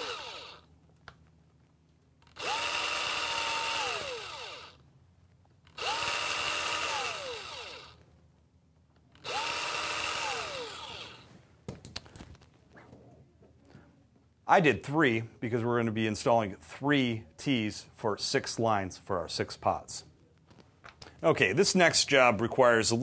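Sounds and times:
power drill whining: 0.0 - 0.7, 2.2 - 4.8, 5.7 - 8.0, 9.1 - 11.3.

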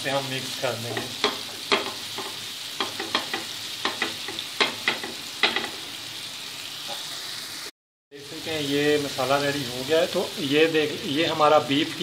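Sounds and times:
food sizzling in oil: 0.0 - 12.0
spatula scraping and knocking pan: 0.8 - 5.8.

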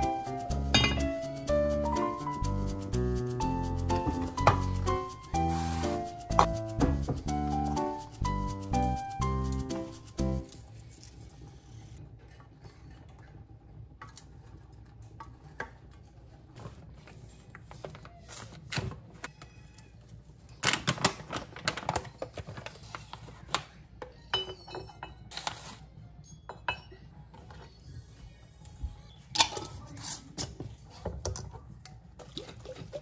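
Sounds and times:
glass jar and utensil clinking: 0.7 - 1.2.

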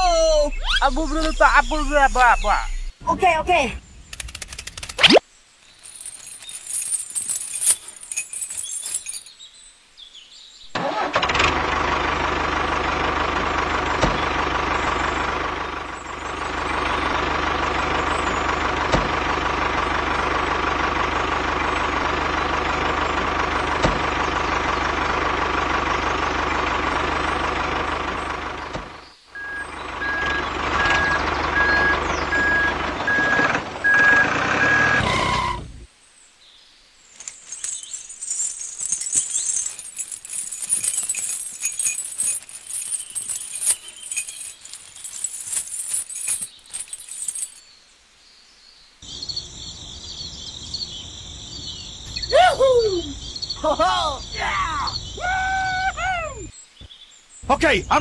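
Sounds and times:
tractor engine running: 0.0 - 5.0, 10.7 - 35.8, 37.2 - 47.6, 57.4 - 58.0
high reversing alarm beeps: 29.4 - 35.6.

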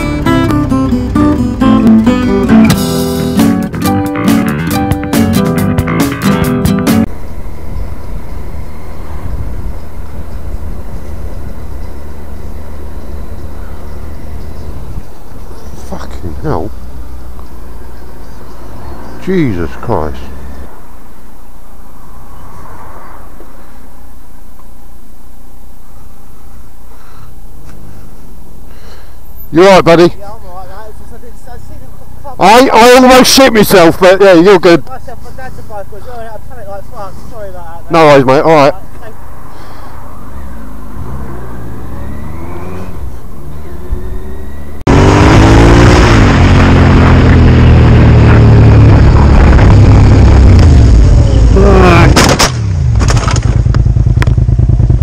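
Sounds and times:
motorcycle engine running: 0.0 - 3.8, 43.6 - 55.0
motorcycle engine rumble: 0.0 - 29.6, 38.6 - 55.0
wind rushing over microphone: 7.1 - 11.7.

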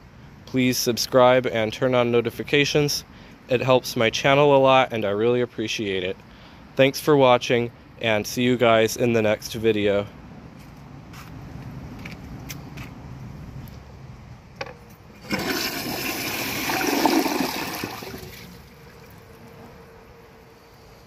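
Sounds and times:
toilet flush button click: 15.2 - 17.5
toilet flushing water rush: 15.2 - 19.5.

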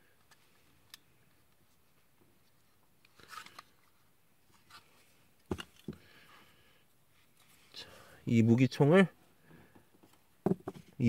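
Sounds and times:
soft rustle: 7.1 - 7.8.

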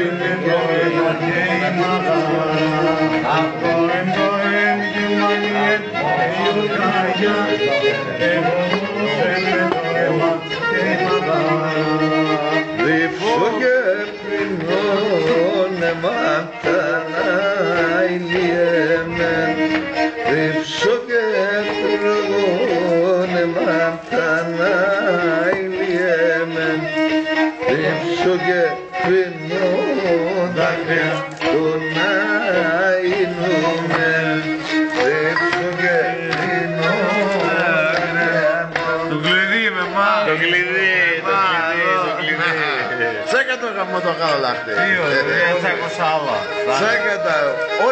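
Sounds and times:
bowed lyra melody: 29.6 - 47.9.

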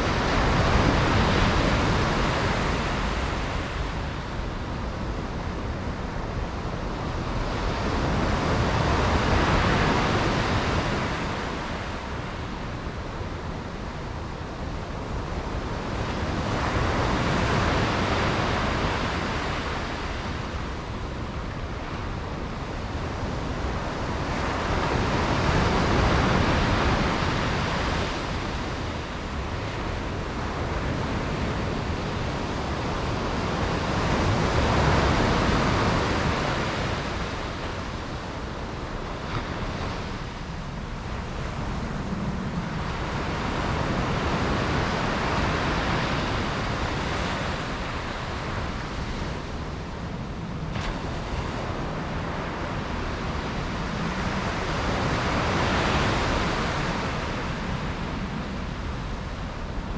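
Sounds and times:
sea surf breaking on shore: 0.0 - 59.9.

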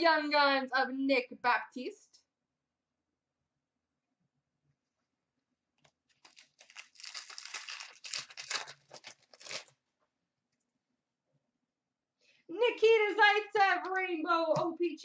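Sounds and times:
foil wrapper crinkling and tearing: 6.1 - 9.8.

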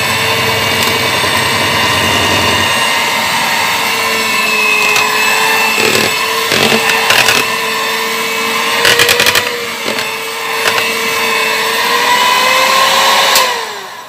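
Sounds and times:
electric hand mixer whirring: 0.0 - 14.0.

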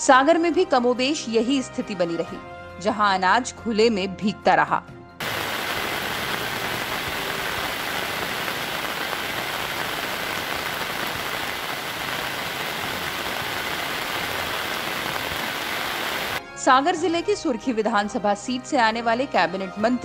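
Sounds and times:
rain on plastic tarpaulins: 5.2 - 16.4.

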